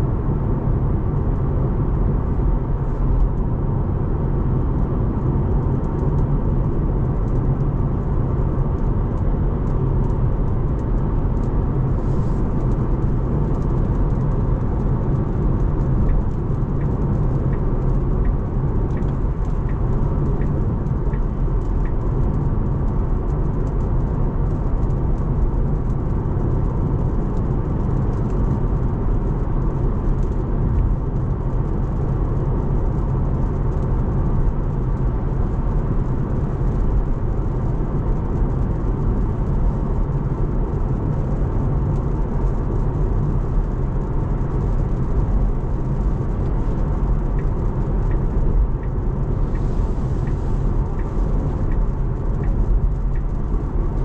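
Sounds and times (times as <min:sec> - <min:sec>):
car road noise on wet road: 0:00.0 - 0:54.0
faint ticks: 0:45.9 - 0:54.0.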